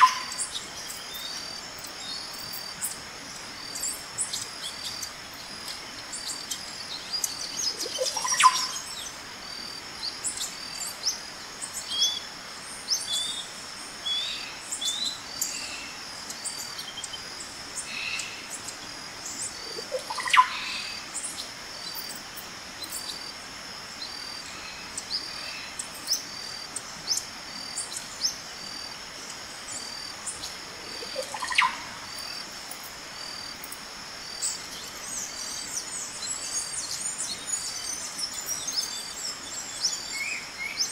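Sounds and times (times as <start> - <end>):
birds chirping and calling: 0.0 - 9.2, 17.8 - 22.2, 29.8 - 32.8
upward sweeping bird call: 19.8 - 21.0.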